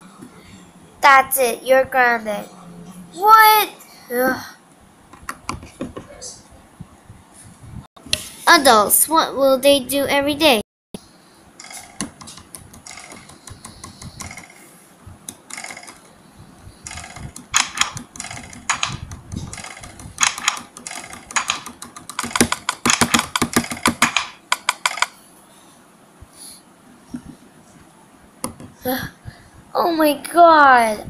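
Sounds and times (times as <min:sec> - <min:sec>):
keyboard typing: 0:11.6 - 0:14.6, 0:15.2 - 0:16.2, 0:16.8 - 0:25.2.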